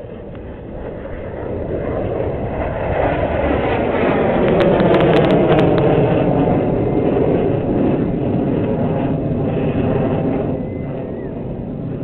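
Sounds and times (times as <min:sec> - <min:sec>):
jet aircraft flying past: 0:00.0 - 0:12.0.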